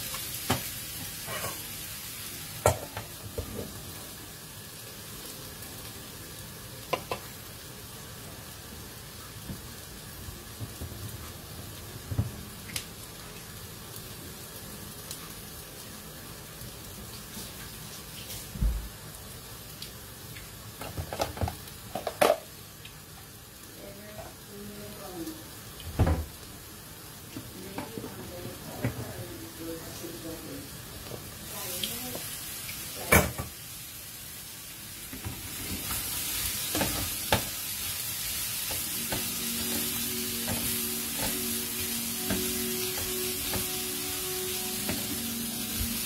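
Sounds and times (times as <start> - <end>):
food sizzling in a frying pan: 0.0 - 46.0.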